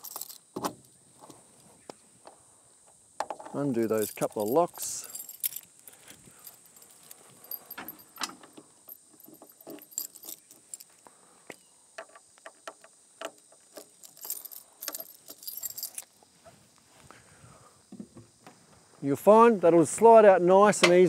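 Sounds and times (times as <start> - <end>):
keys jangling: 0.0 - 0.4, 3.8 - 11.0, 13.7 - 16.1.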